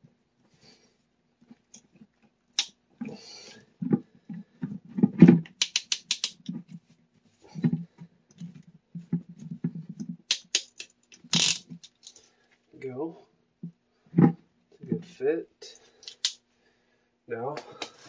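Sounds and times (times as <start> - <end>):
pliers clicking and scraping metal: 5.4 - 6.5, 10.3 - 12.2, 16.0 - 16.4.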